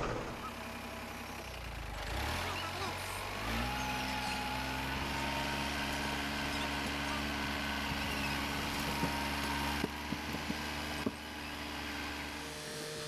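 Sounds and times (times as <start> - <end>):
tractor engine running: 0.0 - 13.0.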